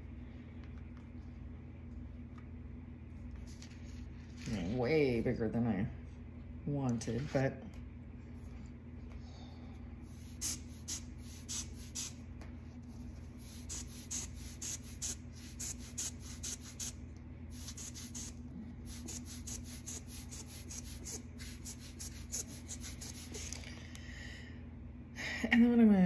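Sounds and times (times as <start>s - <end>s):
faint low hum: 0.0s - 26.0s
marker scratching on paper: 10.1s - 12.2s, 12.9s - 23.6s.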